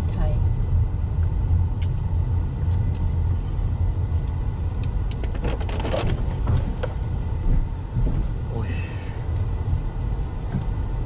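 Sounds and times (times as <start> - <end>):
car engine and tyres rumbling: 0.0 - 11.0
clicks and rattles: 4.2 - 7.0.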